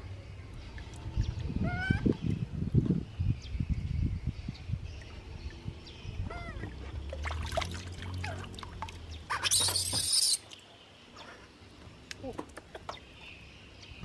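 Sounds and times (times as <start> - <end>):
water splash: 6.7 - 10.6
baby monkey squeaking calls: 9.3 - 10.4.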